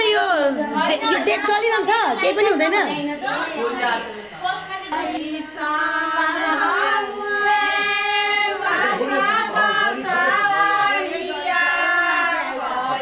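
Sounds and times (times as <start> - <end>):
women singing folk song: 4.4 - 13.0.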